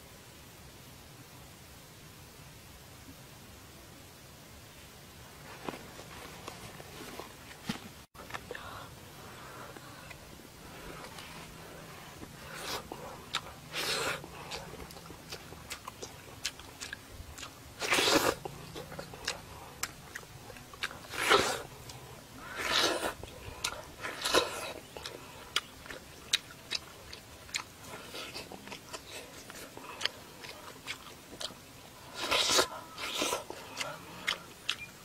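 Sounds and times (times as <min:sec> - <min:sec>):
slurps: 0:09.7 - 0:34.9
wet chewing and lip smacking: 0:09.7 - 0:35.0.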